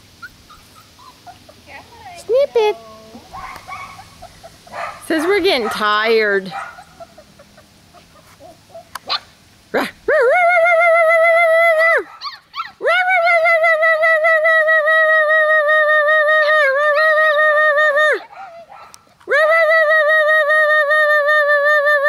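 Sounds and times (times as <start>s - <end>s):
puppy whining: 0.2s - 1.6s
puppy yelping: 0.2s - 1.6s, 2.7s - 9.3s, 12.0s - 12.8s.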